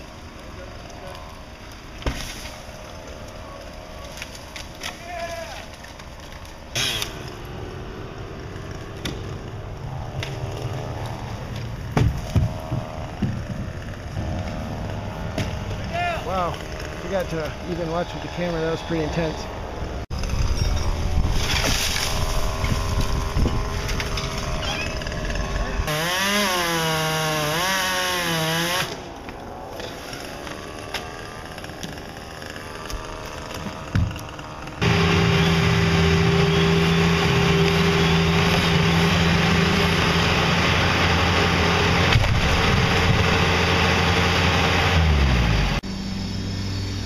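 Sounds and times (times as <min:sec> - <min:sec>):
steady engine drone: 0:06.4 - 0:47.0
chainsaw revving: 0:13.0 - 0:17.9, 0:22.4 - 0:29.1, 0:30.1 - 0:45.8.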